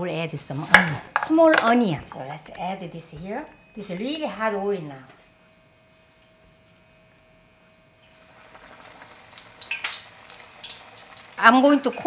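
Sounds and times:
onions sizzling in oil: 0:08.0 - 0:12.0.

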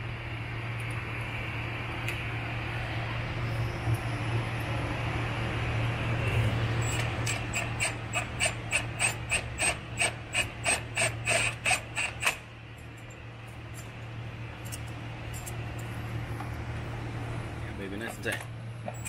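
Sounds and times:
ratchet wrench clicking: 0:06.9 - 0:12.4.

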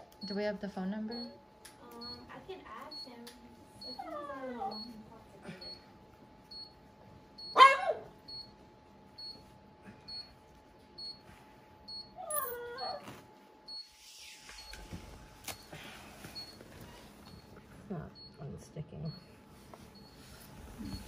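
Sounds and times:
dog whining: 0:03.8 - 0:04.9, 0:07.5 - 0:08.1, 0:12.0 - 0:13.2.

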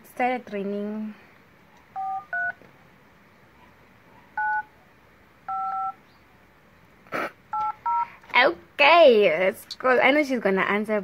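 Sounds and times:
phone keypad dialing tones: 0:02.0 - 0:02.6, 0:04.4 - 0:04.7, 0:05.5 - 0:06.0, 0:07.5 - 0:08.1.

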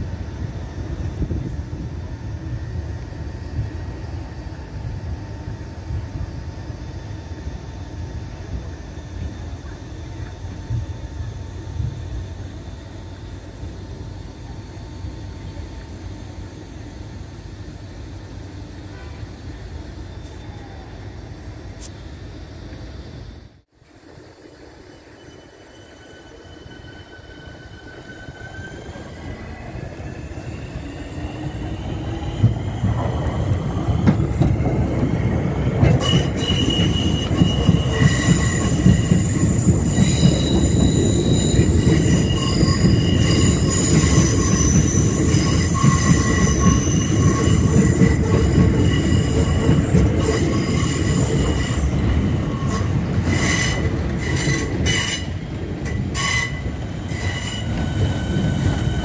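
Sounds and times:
electric train motor whine: 0:00.0 - 0:59.0
wheels squealing on track: 0:35.8 - 0:55.4, 0:56.1 - 0:59.0.

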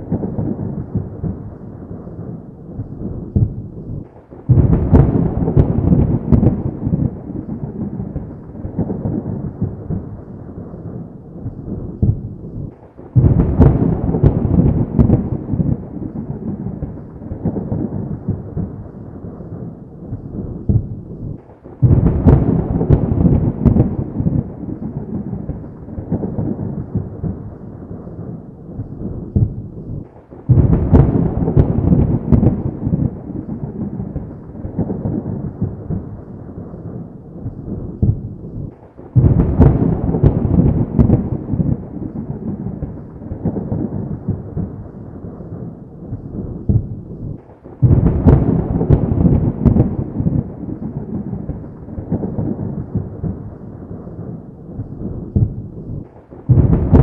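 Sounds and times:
loud thunder peals: 0:00.0 - 0:57.0
thunder rolling: 0:00.0 - 0:57.0.

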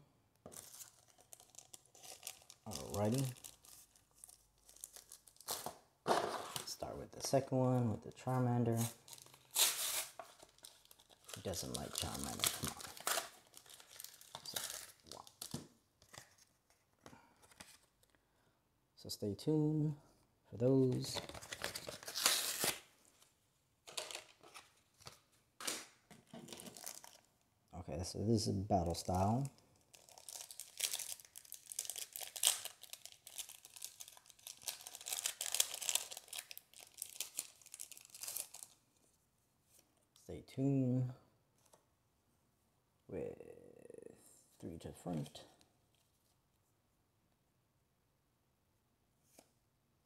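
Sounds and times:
foil wrapper tearing and crinkling: 0:00.5 - 0:05.7, 0:08.8 - 0:15.5, 0:21.4 - 0:22.8, 0:26.5 - 0:27.2, 0:29.9 - 0:38.8.

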